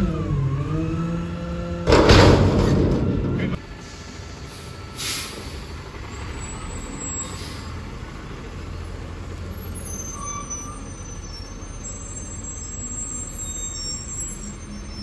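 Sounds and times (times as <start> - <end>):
diesel truck engine rumbling: 0.0 - 15.0
faint high squeals: 9.5 - 15.0.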